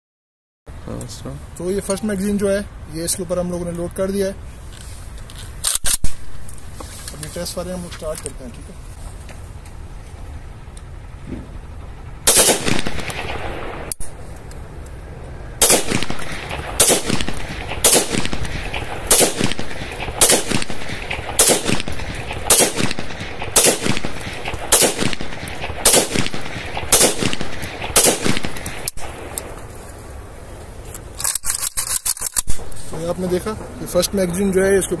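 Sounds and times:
rifle gunshots with echo: 12.2s - 14.2s, 15.6s - 29.6s.

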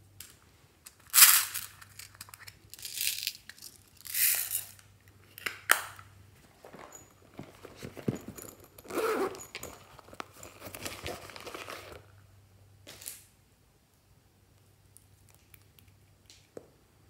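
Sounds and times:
pouch crinkling in hands: 6.4s - 12.2s.

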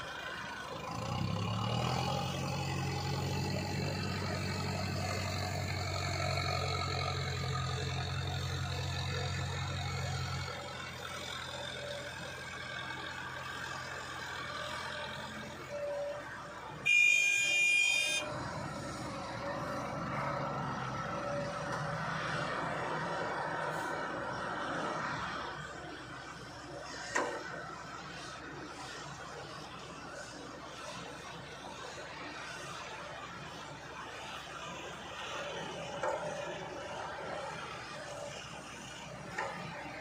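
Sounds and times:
excavator diesel engine under load: 0.0s - 40.0s
vehicle horn: 16.8s - 18.3s.

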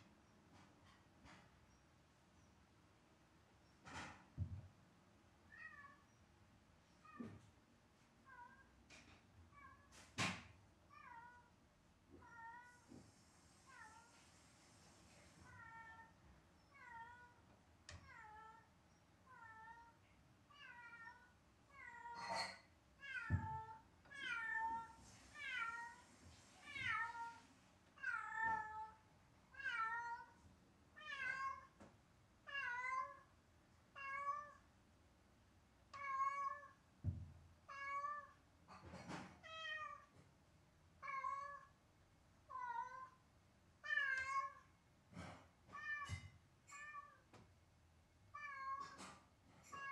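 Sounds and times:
cat meowing: 31.0s - 31.8s, 32.5s - 33.3s, 35.9s - 36.8s, 41.0s - 41.8s, 42.5s - 43.2s, 43.8s - 44.7s, 48.4s - 49.0s.

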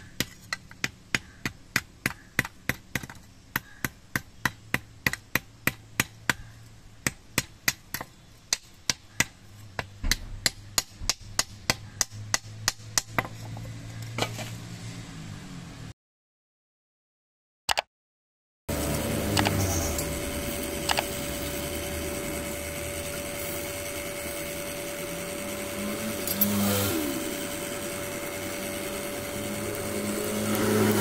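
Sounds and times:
hammer tapping sickle on anvil: 0.1s - 13.6s.

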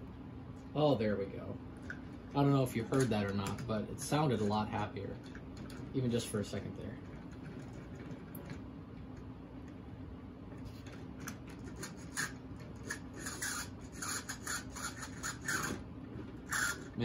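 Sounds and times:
toy train scraping on rails: 11.7s - 15.8s, 16.5s - 16.9s.

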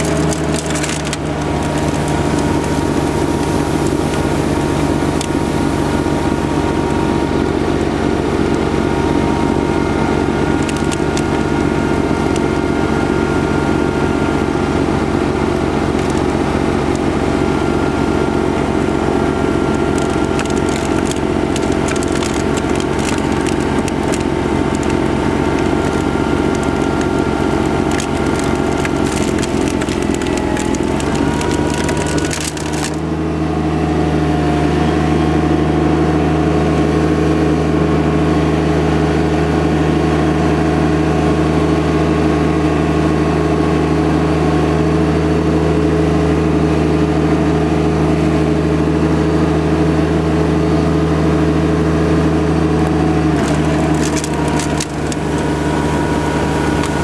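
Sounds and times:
crackle of sharp clicks: 0.0s - 4.2s, 10.6s - 11.5s, 19.7s - 33.0s, 52.8s - 55.9s
diesel tractor engine drone: 0.0s - 57.0s.

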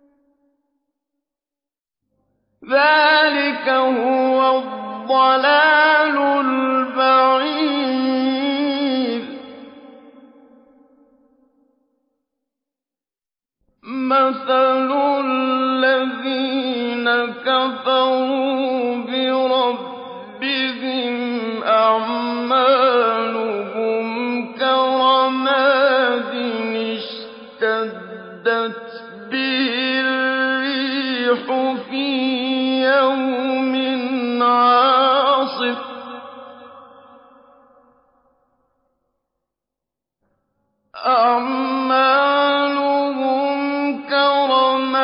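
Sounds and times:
man chanting recitation: 2.6s - 9.6s, 13.8s - 37.0s, 41.0s - 45.0s.

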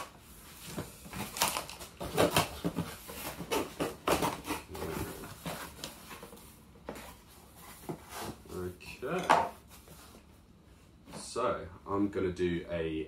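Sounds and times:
cardboard flaps rustling: 0.0s - 8.7s.

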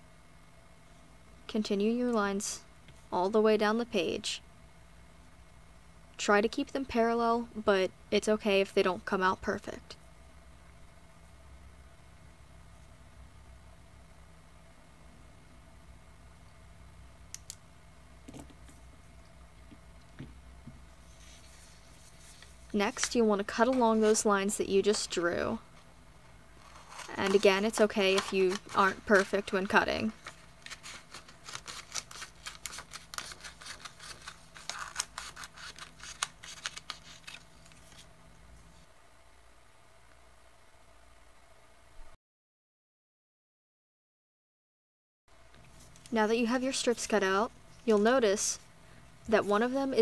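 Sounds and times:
low steady hum: 0.0s - 42.2s, 45.3s - 50.0s
scissors snipping paper: 26.6s - 38.0s.

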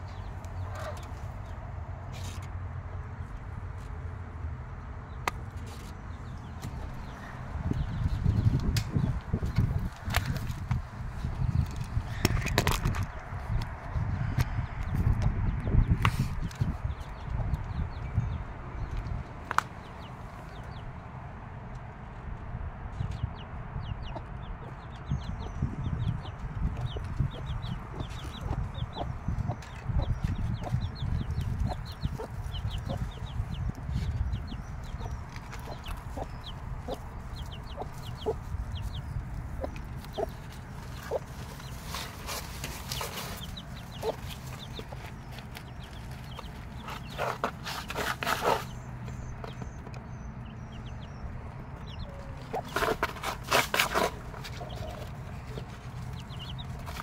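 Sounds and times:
chicks peeping: 0.0s - 1.6s, 5.2s - 20.9s, 23.0s - 57.0s
hen clucking: 26.7s - 48.8s, 50.4s - 57.0s.

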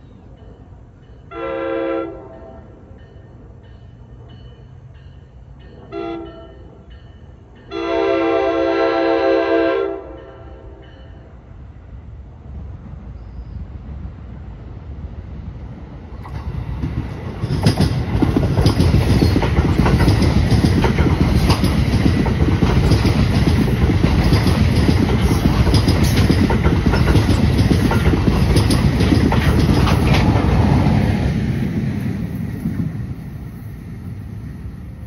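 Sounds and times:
train passing with loud rumble: 0.0s - 35.0s
wheels clicking over rail joints: 16.2s - 33.1s.

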